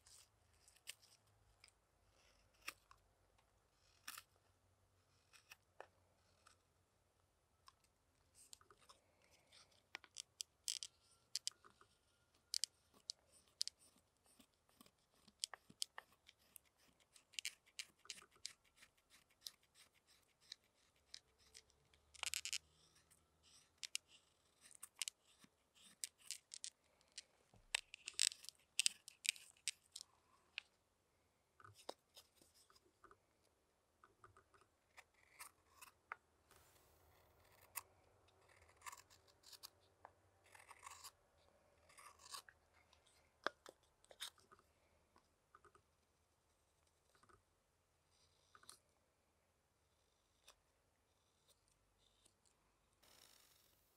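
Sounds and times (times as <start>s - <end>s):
knife carving wood: 0.0s - 1.2s, 2.2s - 3.0s, 3.8s - 4.4s, 5.1s - 6.6s, 7.7s - 30.6s, 31.6s - 33.2s, 34.3s - 39.8s, 40.4s - 41.2s, 41.8s - 44.6s.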